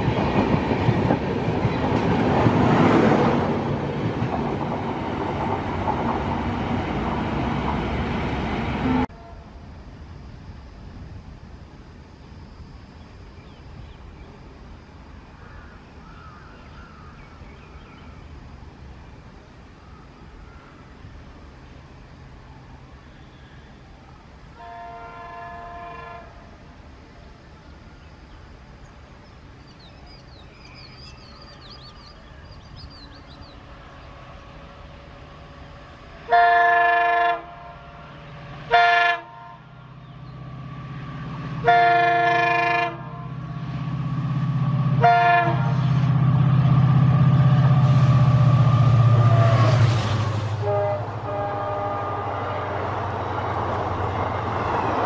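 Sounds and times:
train coaches rolling: 0.0 - 9.1, 39.8 - 55.0
locomotive air horn blasts: 9.0 - 9.6, 24.6 - 26.5, 36.2 - 39.7, 41.6 - 43.3, 45.0 - 45.8, 47.8 - 53.0
locomotive engine rumble: 39.6 - 55.0.

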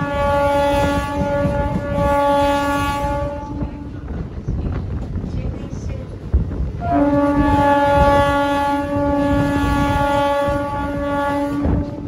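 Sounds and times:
train horn blast: 0.0 - 4.1, 6.8 - 12.0
train rumbling on track: 0.0 - 12.0.

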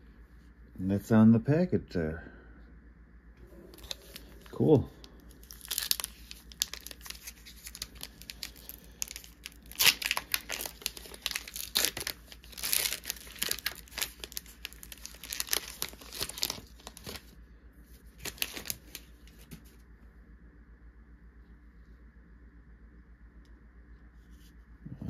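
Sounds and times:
foil wrapper tearing and crinkling: 3.7 - 17.3, 18.1 - 19.5.

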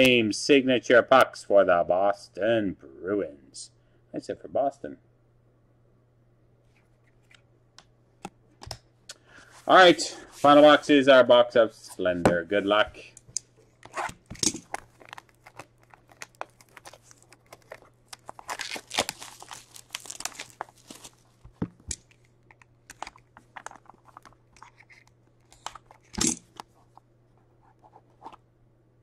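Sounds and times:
plastic wrap tearing and crinkling: 13.8 - 26.1.

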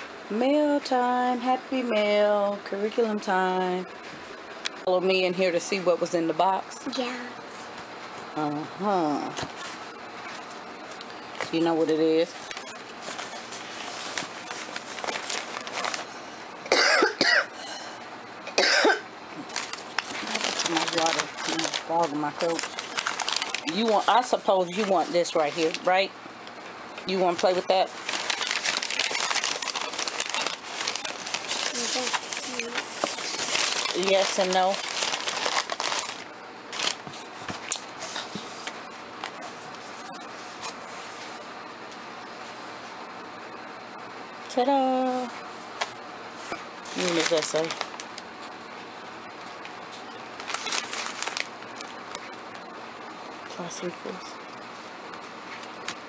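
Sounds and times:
packing paper rustling in a box: 12.2 - 16.1, 19.5 - 26.0, 27.3 - 38.7, 46.8 - 48.2, 50.4 - 52.3
person coughing: 16.7 - 17.6, 18.6 - 19.0.

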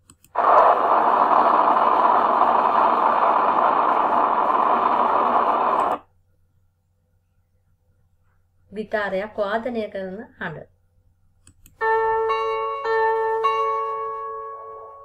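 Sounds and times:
rocket engines roaring: 0.4 - 6.0.

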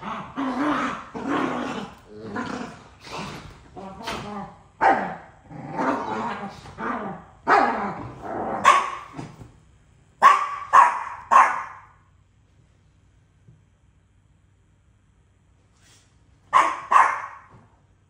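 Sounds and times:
dogs growling: 0.0 - 9.2
dog barking sharply: 10.2 - 11.9, 16.5 - 17.5.

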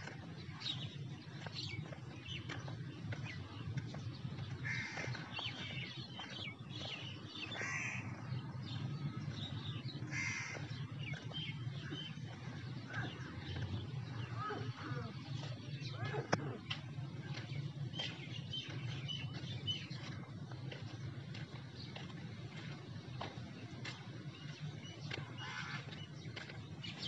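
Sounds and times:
small birds chirping: 0.0 - 27.0
steady low rumble: 0.0 - 27.0
crows cawing: 4.6 - 5.4, 7.5 - 8.2, 10.1 - 10.9, 12.8 - 15.2, 25.2 - 26.0.

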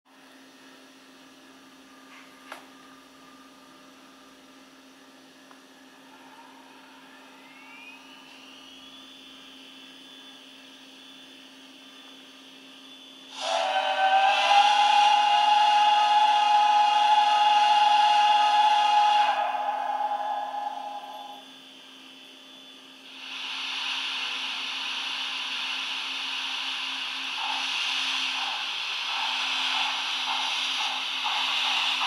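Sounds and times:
rising whine: 5.8 - 15.1
loud multi-tone whistle: 6.8 - 12.1, 12.8 - 21.6.

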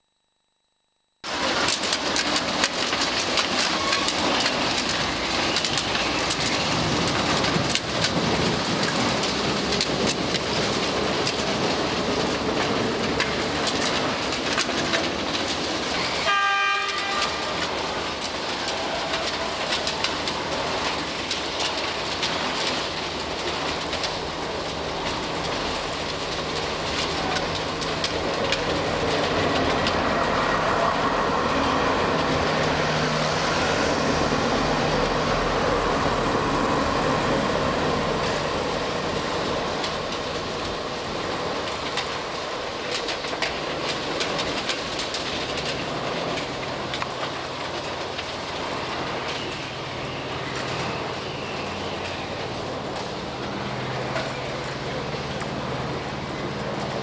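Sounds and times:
clatter and hiss of stones: 1.3 - 57.0
low engine hum: 23.4 - 44.4.

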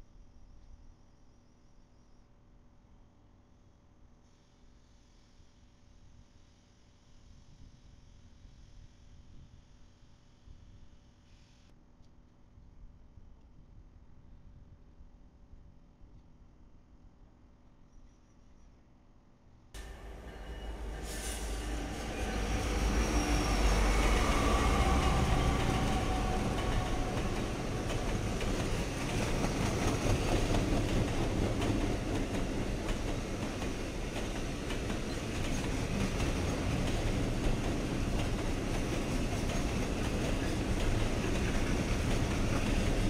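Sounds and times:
diesel locomotive engines rumbling: 19.8 - 43.0
train wheels on rails: 19.8 - 43.0.

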